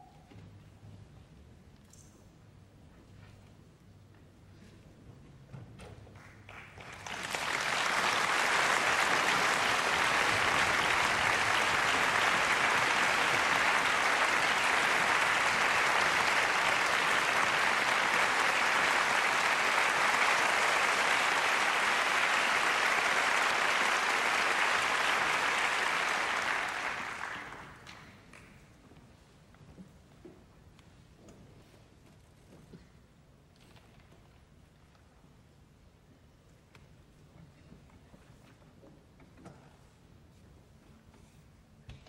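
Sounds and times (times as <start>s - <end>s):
audience applauding: 6.2s - 28.5s.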